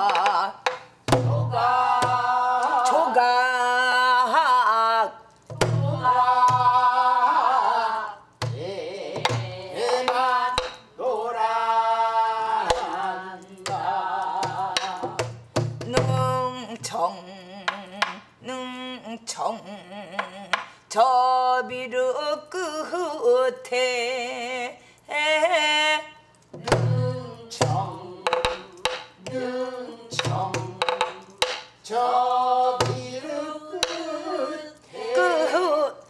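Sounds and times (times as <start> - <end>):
barrel drum struck: 0.7 - 2.2, 14.4 - 16.4
woman singing folk song: 1.3 - 36.0.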